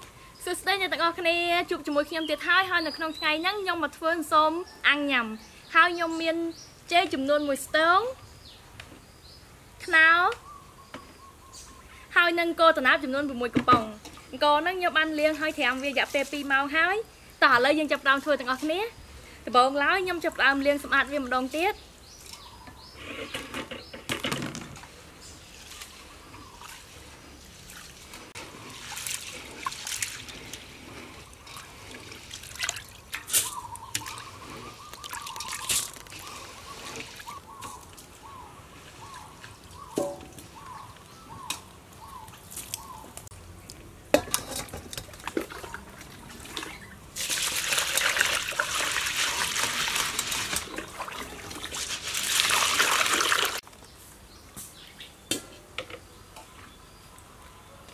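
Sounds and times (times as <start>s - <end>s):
rice washed by hand in water: 25.4s - 37.9s, 45.2s - 53.6s
water pouring through colander: 27.7s - 37.4s, 45.1s - 53.6s.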